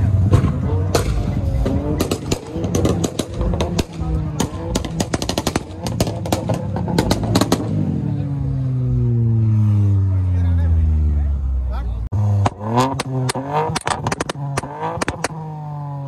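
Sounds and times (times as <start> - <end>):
engine revving: 0.0 - 16.0
exhaust pops and crackles: 0.1 - 7.9, 12.4 - 15.7.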